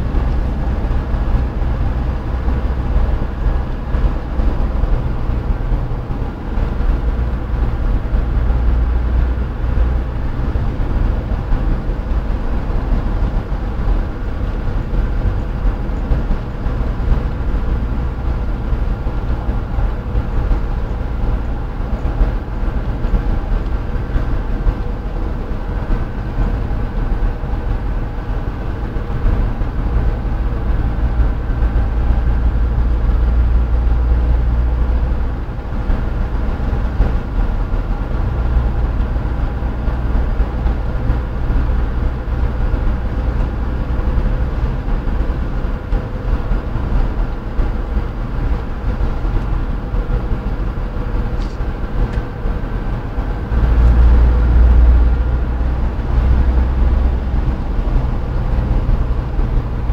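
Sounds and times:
vehicle deep rumble: 0.0 - 59.9.

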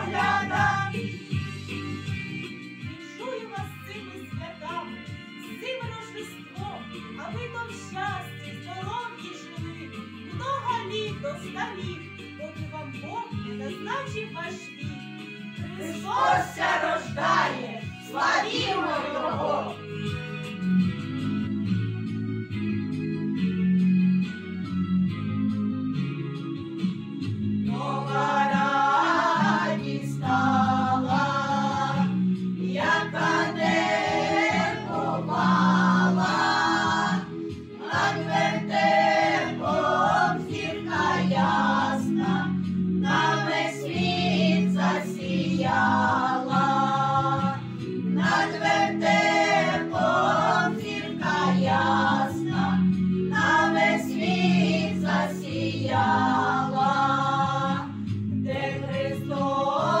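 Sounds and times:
women singing together: 0.0 - 1.4, 15.7 - 19.8, 27.7 - 60.0.

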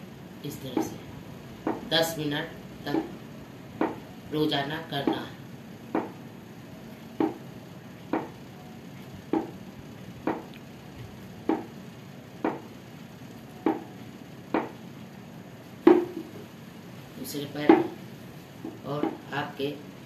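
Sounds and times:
wooden stool knocking: 1.6 - 1.9, 3.8 - 4.0, 5.9 - 6.2, 7.2 - 7.4, 8.1 - 8.4, 9.3 - 9.6, 10.2 - 10.5, 11.4 - 11.7, 12.4 - 12.7, 13.6 - 14.8, 15.8 - 16.4, 17.6 - 18.0, 18.6 - 19.3.

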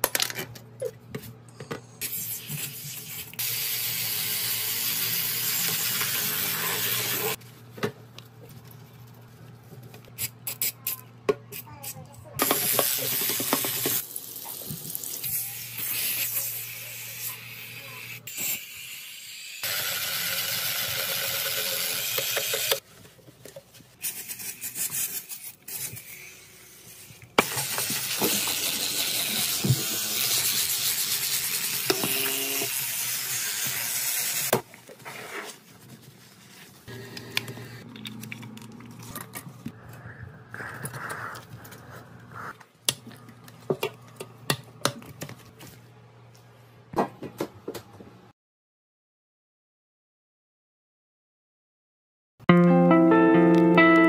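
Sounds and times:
sponge scrubbing toilet: 34.8 - 36.9.

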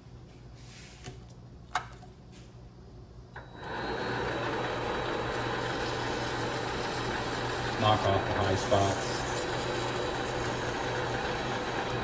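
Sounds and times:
lathe motor spinning: 3.4 - 12.0.

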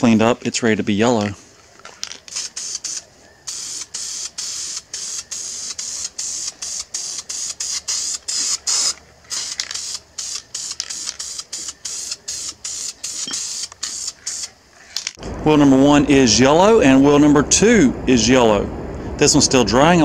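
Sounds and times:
spray paint can hissing bursts: 2.1 - 14.6.

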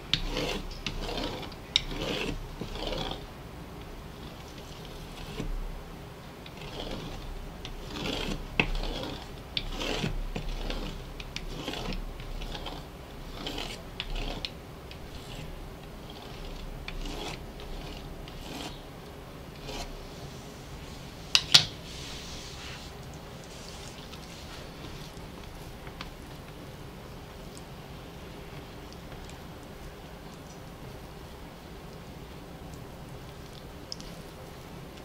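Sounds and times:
blade scraping through dough: 0.0 - 3.3, 4.1 - 5.6, 6.4 - 26.2.

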